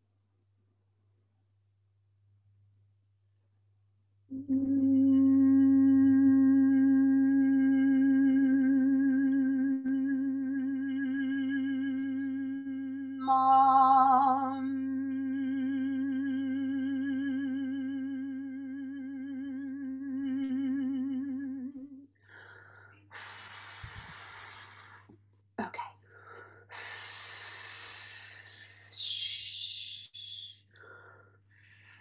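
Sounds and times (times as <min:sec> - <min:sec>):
woman humming: 0:04.3 - 0:22.1, 0:26.8 - 0:30.6.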